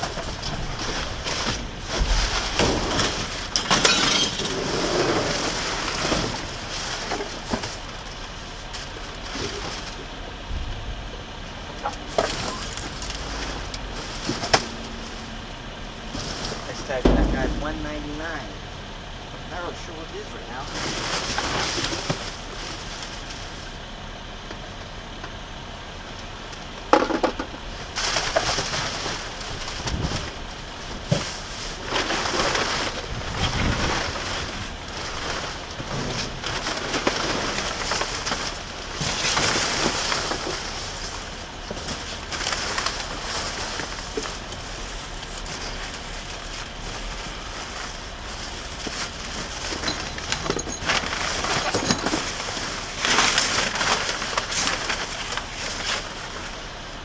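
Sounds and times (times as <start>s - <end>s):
plastic wrap and cardboard rustling: 0.0s - 10.2s, 12.0s - 18.5s, 20.5s - 23.8s, 27.7s - 57.0s.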